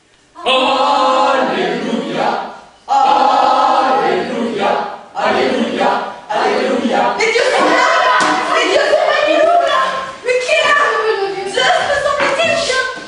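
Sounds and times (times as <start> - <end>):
voices singing in chorus: 0.4 - 9.0.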